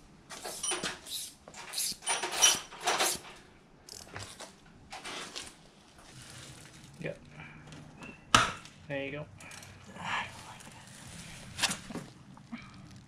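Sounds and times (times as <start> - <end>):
metal tools clattering: 1.6 - 3.4.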